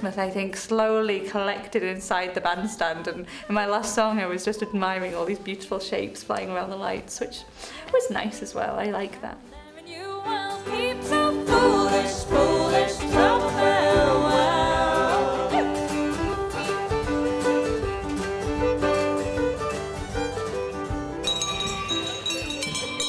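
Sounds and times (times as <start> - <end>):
fiddle playing lead line: 12.4 - 21.2.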